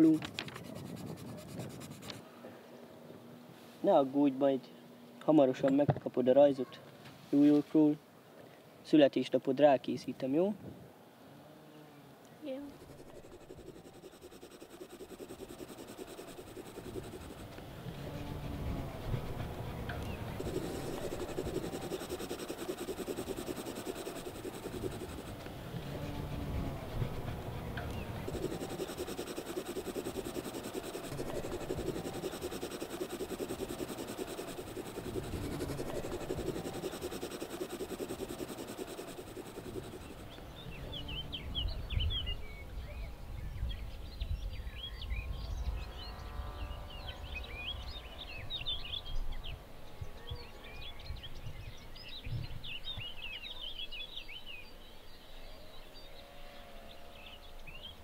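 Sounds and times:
small birds chirping: 12.4s - 17.6s, 19.0s - 25.4s, 26.9s - 42.4s
steady noisy hum: 12.4s - 41.6s.

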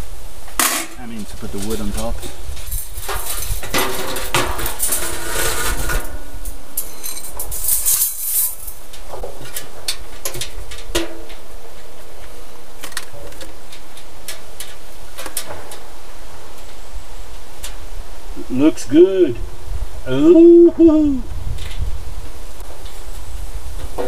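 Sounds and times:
sheet metal scraping: 0.6s - 9.7s.

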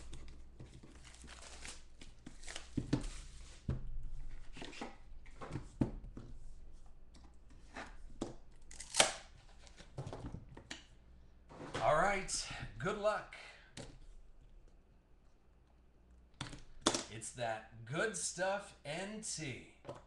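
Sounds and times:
plastic wrap tearing and crinkling: 0.8s - 3.4s.

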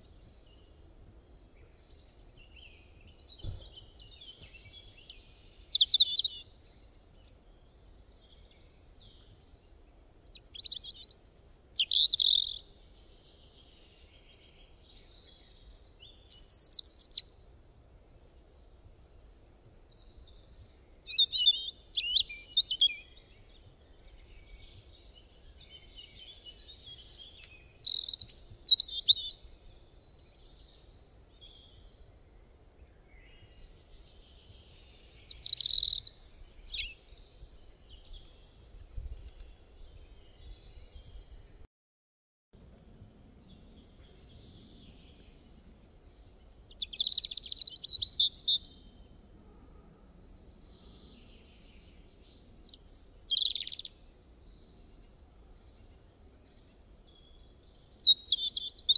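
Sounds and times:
songbird chirping and trilling: 0.0s - 17.4s, 18.2s - 41.6s, 43.4s - 49.2s, 49.9s - 58.9s.

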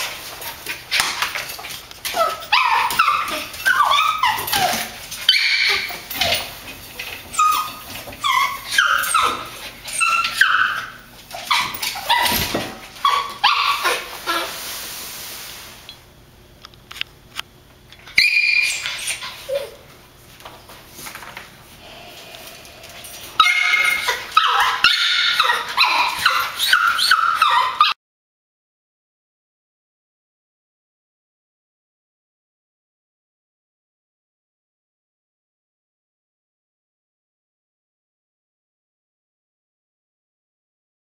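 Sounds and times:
puppy whining and yipping: 2.0s - 14.5s, 18.0s - 19.9s, 23.4s - 28.0s.

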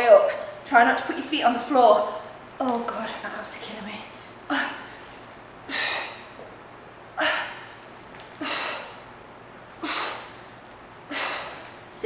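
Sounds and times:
woman exhaling forcefully: 5.7s - 6.4s, 8.4s - 9.0s, 9.8s - 10.5s, 11.1s - 11.8s.

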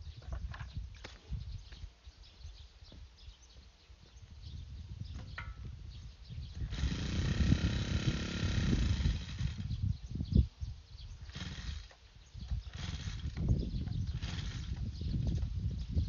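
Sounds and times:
brush cutter churning cement: 6.6s - 9.8s, 11.2s - 15.4s.

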